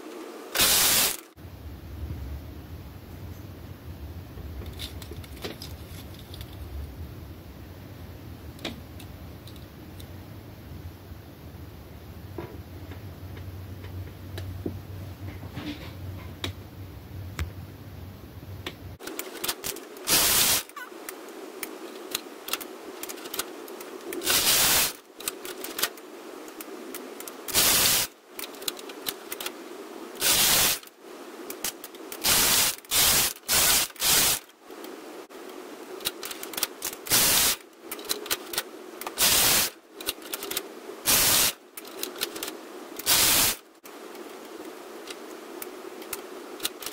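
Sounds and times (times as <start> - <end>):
faint low hum: 1.3 - 24.3
knitting machine carriage clatter: 19.0 - 20.9.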